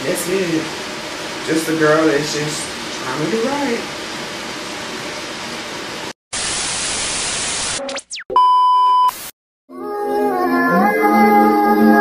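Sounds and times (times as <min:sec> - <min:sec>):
tv static burst: 0:06.3 - 0:08.2, 0:09.0 - 0:09.3
loud steady beep: 0:08.3 - 0:09.2
music with singing: 0:09.7 - 0:12.0.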